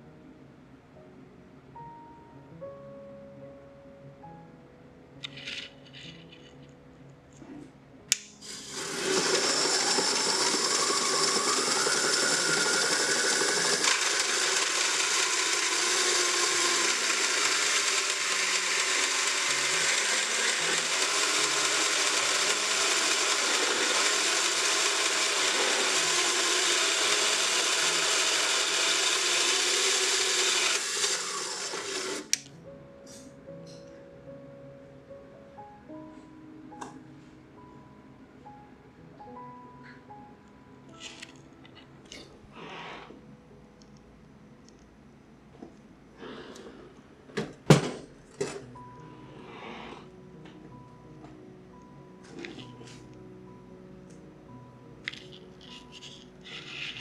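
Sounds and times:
band saw cutting metal: 8.4s - 32.4s.

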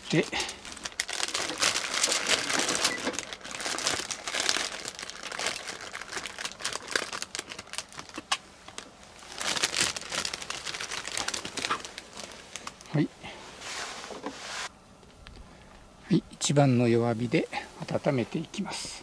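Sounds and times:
plastic bag crinkling: 0.0s - 13.0s.

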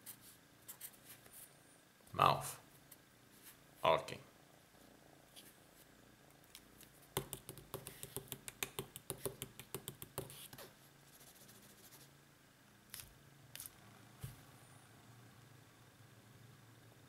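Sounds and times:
light taps on paper: 7.2s - 10.6s.

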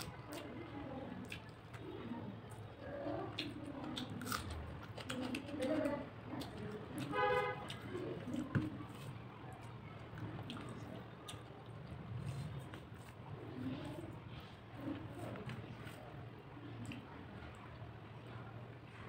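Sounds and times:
person chewing and lip-smacking: 0.0s - 1.8s, 2.5s - 13.2s.

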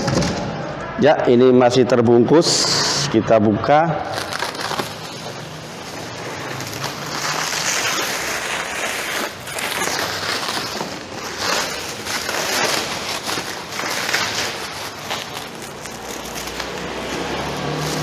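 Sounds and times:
plastic wrap crinkling: 4.0s - 18.0s.

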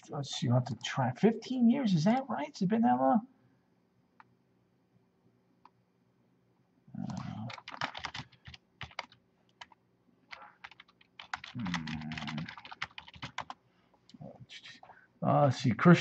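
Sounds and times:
keyboard keys clicking: 7.1s - 13.6s.

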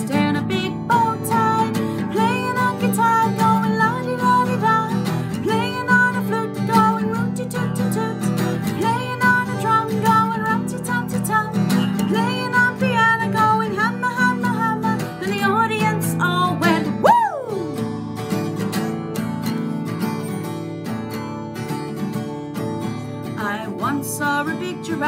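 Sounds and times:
woman singing wordless melody: 0.0s - 17.8s, 23.3s - 25.0s
acoustic guitar strumming: 0.0s - 25.0s.

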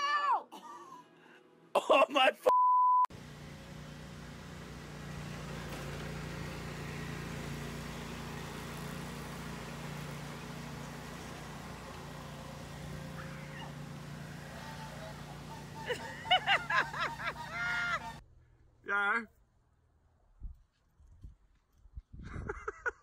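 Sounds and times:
low mechanical hum: 3.1s - 18.8s.

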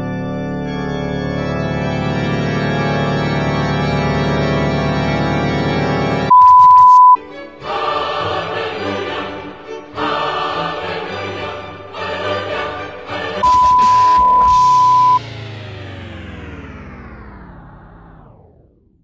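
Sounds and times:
background music: 0.0s - 6.3s, 7.2s - 16.5s
held organ-like chord: 0.0s - 6.4s
electronic beep: 6.3s - 7.2s, 13.4s - 15.2s.

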